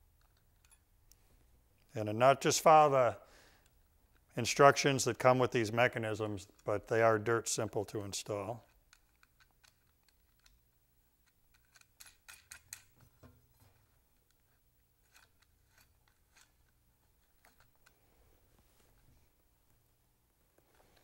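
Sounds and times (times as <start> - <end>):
small metal parts clicking: 0.1 - 0.9, 8.7 - 13.2, 14.2 - 18.0.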